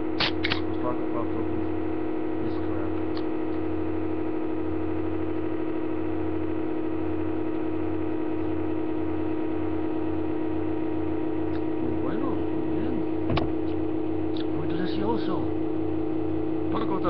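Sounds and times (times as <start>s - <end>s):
laptop fan droning: 0.0s - 17.0s
low pulsing throb: 0.0s - 17.0s.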